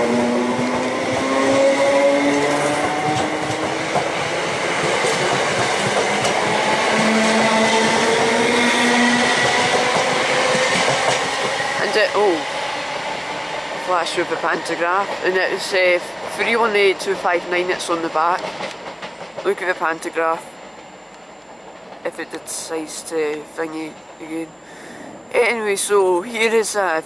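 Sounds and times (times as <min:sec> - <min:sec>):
train motors whining: 0:00.0 - 0:15.2
train wheels rumbling on rails: 0:00.0 - 0:22.2.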